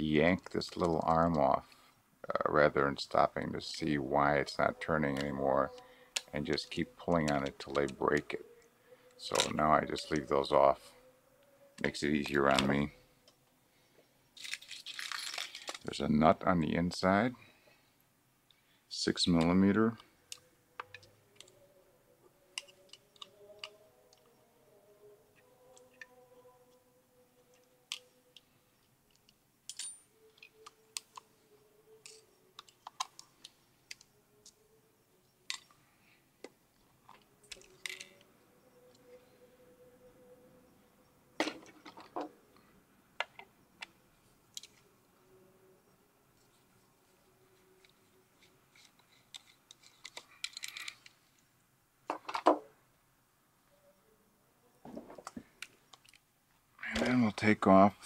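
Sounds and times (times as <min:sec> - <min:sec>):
metal parts clattering: 0:14.4 - 0:15.9, 0:49.8 - 0:51.1
small tools clicking on metal: 0:22.6 - 0:24.3, 0:29.1 - 0:31.3, 0:32.0 - 0:34.6, 0:37.1 - 0:38.2, 0:48.7 - 0:51.2.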